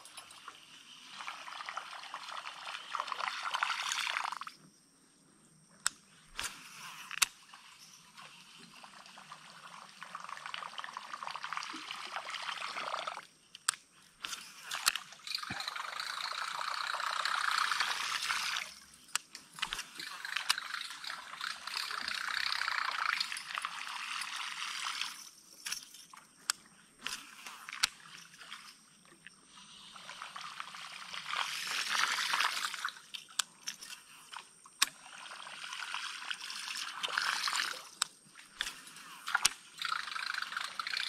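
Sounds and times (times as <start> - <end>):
fishing reel whirring: 0.0 - 4.4, 6.3 - 28.8, 29.6 - 41.0
sharp reel clicks: 5.8 - 9.6, 13.4 - 28.7, 30.6 - 35.2, 35.8 - 41.0.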